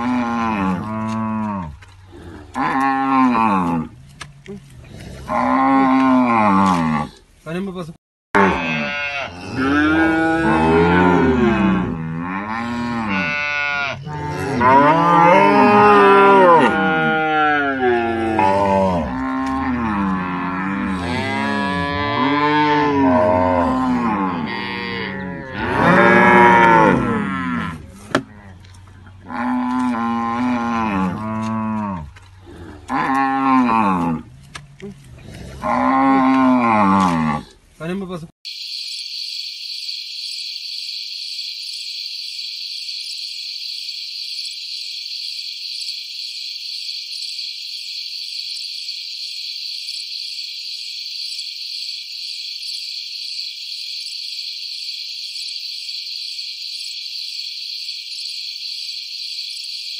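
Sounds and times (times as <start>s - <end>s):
cattle mooing: 0.0s - 3.9s, 8.4s - 28.6s, 29.2s - 34.2s, 35.4s - 37.5s.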